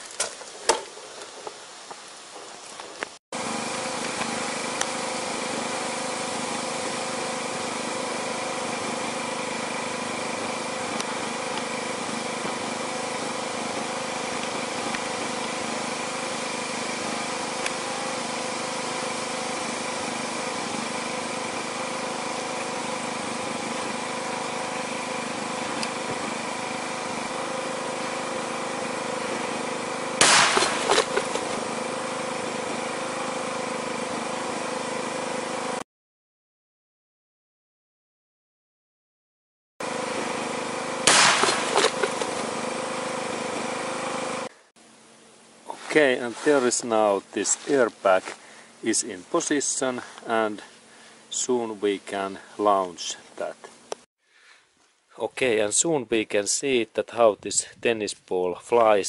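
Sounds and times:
steady mechanical hum: 0:00.0 - 0:35.8, 0:39.8 - 0:54.1
airbag bang: 0:30.2 - 0:31.6, 0:41.1 - 0:42.4.

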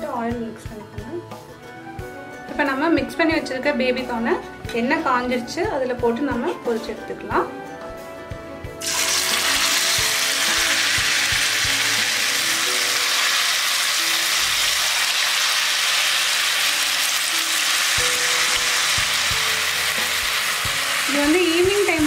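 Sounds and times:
food deep-frying in oil: 0:08.8 - 0:22.0.

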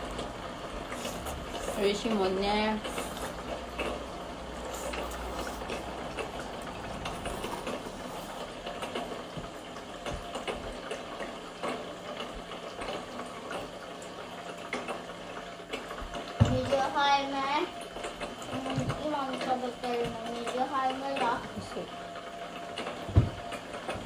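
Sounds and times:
small pump motor humming: 0:00.0 - 0:24.0
water flowing down chute: 0:00.0 - 0:24.0.

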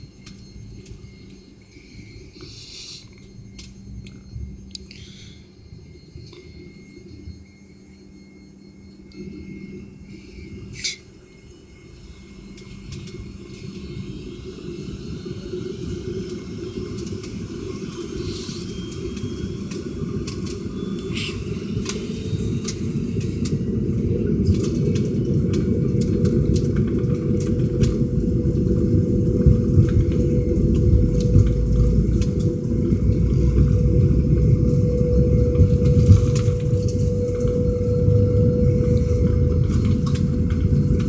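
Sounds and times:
jet engines spooling up: 0:10.0 - 0:41.0.

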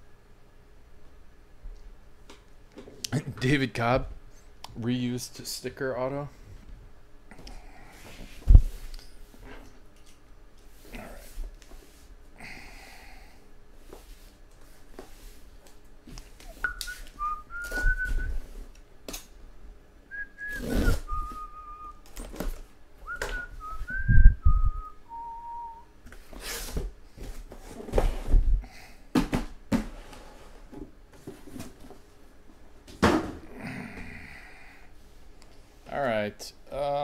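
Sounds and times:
person whistling a tune: 0:16.6 - 0:18.4, 0:20.1 - 0:22.0, 0:23.0 - 0:25.9
boxes sliding: 0:20.4 - 0:22.6.

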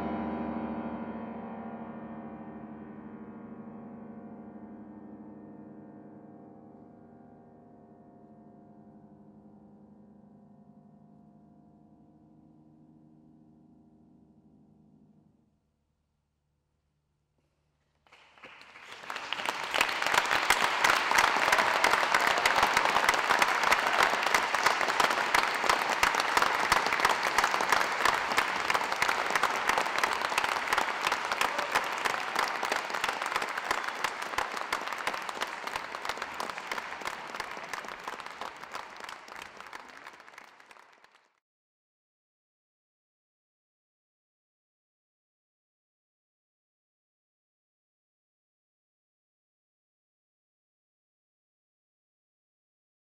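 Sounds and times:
audience applauding: 0:18.1 - 0:41.4.

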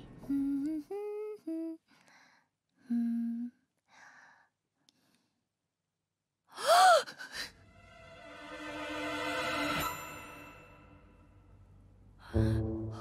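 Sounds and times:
soft breathy sounds: 0:00.1 - 0:05.6
woman humming: 0:00.2 - 0:01.8, 0:02.8 - 0:03.6.

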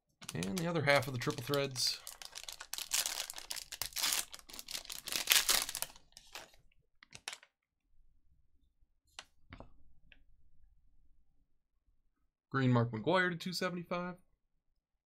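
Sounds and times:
foil wrapper tearing and crinkling: 0:00.2 - 0:07.4.

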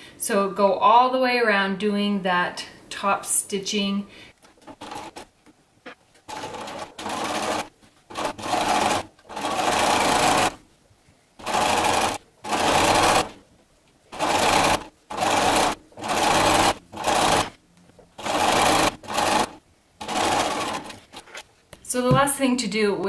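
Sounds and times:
sewing machine stitching: 0:04.6 - 0:05.3, 0:06.3 - 0:10.6, 0:11.4 - 0:13.4, 0:14.1 - 0:17.6, 0:18.2 - 0:21.2.

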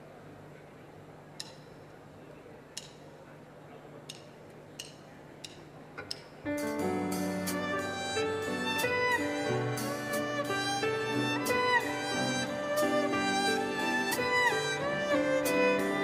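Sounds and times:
live ensemble playing held chord: 0:06.5 - 0:16.0.

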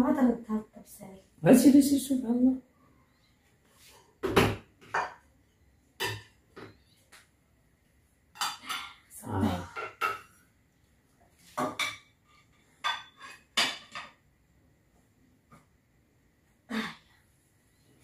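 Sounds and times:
plates and pan clattering: 0:04.2 - 0:05.2, 0:06.0 - 0:06.7, 0:08.3 - 0:10.4, 0:11.5 - 0:14.2.

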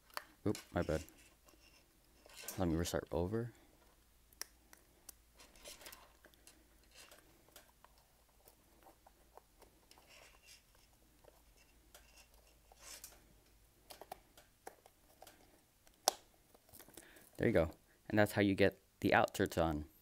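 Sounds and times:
rubber rubbing: 0:00.0 - 0:02.9, 0:04.6 - 0:13.2.

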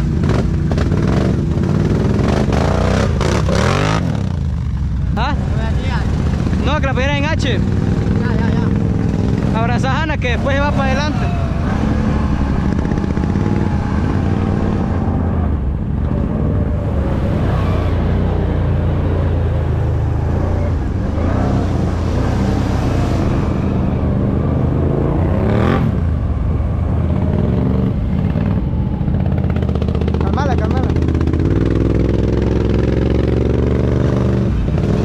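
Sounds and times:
atv engine revving: 0:00.0 - 0:35.0.

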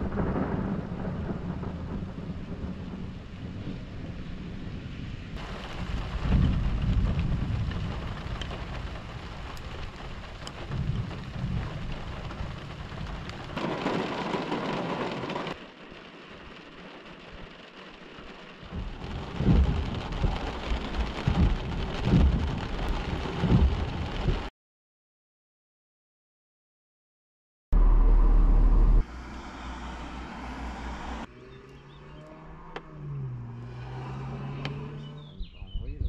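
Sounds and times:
rolling thunder: 0:00.0 - 0:15.5, 0:18.6 - 0:24.5
heavy rain: 0:00.0 - 0:24.5, 0:27.8 - 0:31.3.

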